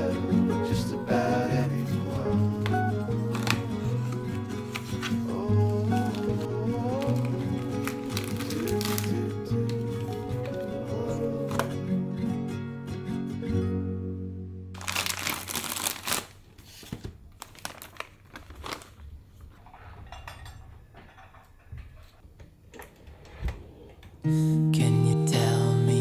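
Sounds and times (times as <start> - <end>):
song playing: 0.0 - 14.7
plastic bag crinkling: 3.2 - 10.6, 14.8 - 19.6.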